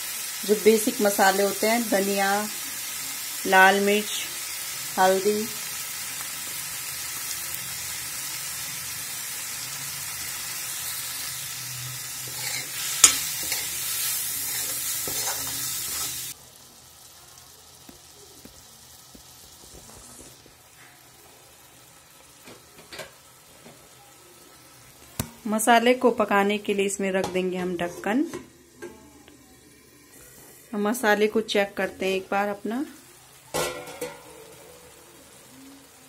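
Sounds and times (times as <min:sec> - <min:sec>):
food sizzling in a pan: 0:00.0 - 0:36.0
spatula stirring and scraping: 0:12.2 - 0:16.4
faint hiss: 0:32.6 - 0:36.0.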